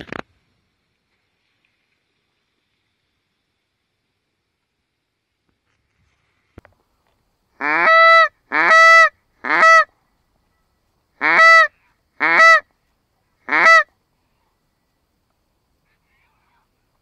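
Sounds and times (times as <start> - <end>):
goose honks: 7.6 - 9.9, 11.2 - 12.6, 13.5 - 13.9.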